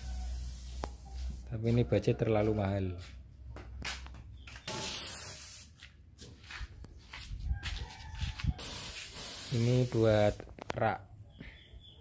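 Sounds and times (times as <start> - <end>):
spray gun hissing: 0.0 - 1.5, 4.7 - 5.7, 8.6 - 10.4.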